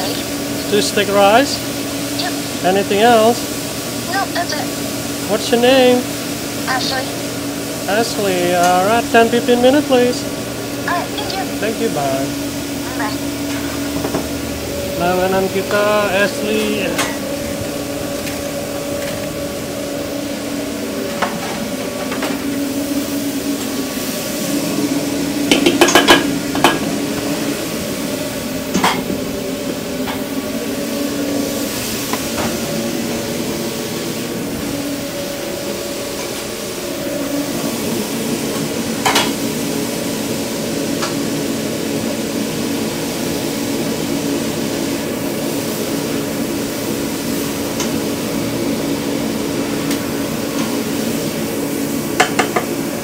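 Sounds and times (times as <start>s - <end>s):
food sizzling: 0.0s - 53.0s
mechanical hum: 0.0s - 53.0s.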